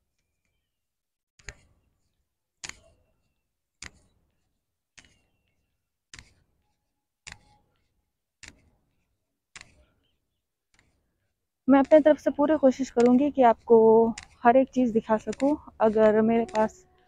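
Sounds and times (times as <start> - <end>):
footsteps clicking: 11.7 - 17.0.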